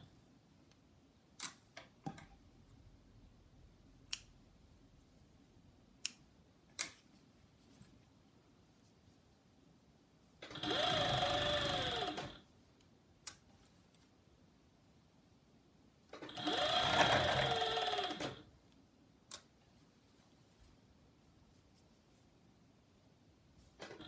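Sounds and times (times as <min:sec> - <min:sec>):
serger stitching: 0:10.4 - 0:12.4, 0:16.2 - 0:18.5.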